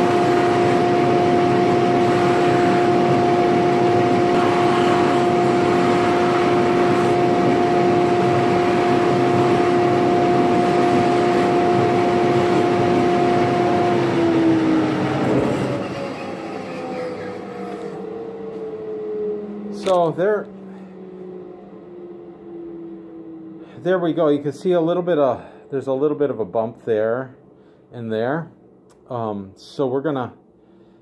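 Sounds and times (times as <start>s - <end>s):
buffing motor hum: 0.0s - 24.0s.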